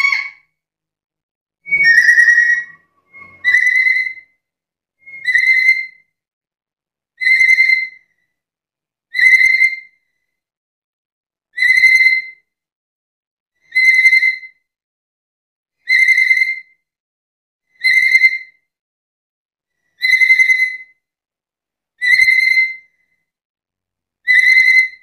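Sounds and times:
parrot calling: 0.0 - 0.4, 1.7 - 4.2, 5.2 - 5.9.

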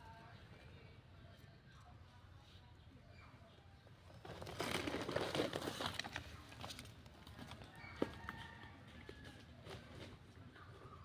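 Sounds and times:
crackling rustling noise: 4.2 - 7.6.

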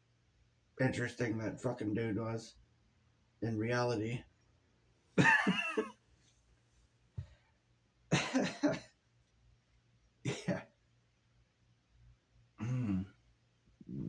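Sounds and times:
man coughing: 5.2 - 5.9, 8.1 - 8.9, 10.3 - 10.7, 12.6 - 13.1.

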